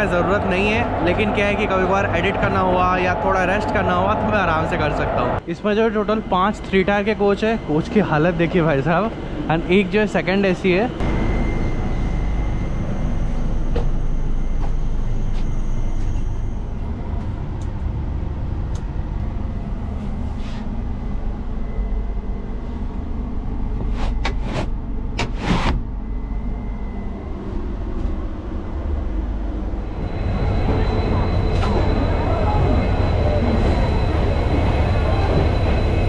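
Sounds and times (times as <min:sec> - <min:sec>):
train coach rumble: 0:27.1 - 0:36.0.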